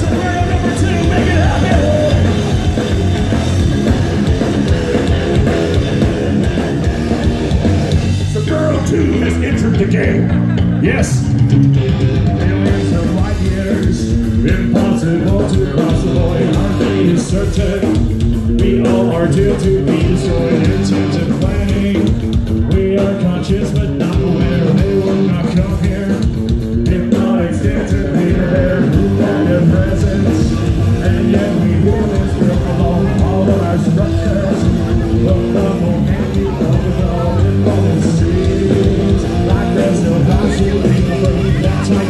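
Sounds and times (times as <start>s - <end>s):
person singing: 0.0s - 6.8s, 11.2s - 42.0s
live metal band playing: 0.0s - 42.0s.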